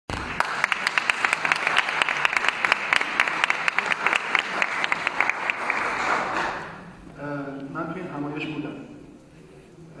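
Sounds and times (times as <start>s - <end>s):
crowd applauding: 0.1s - 6.7s.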